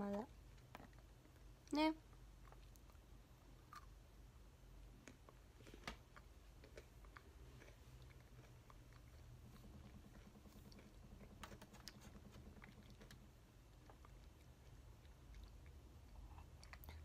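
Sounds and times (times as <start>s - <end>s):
low hum: 7.0s - 17.0s.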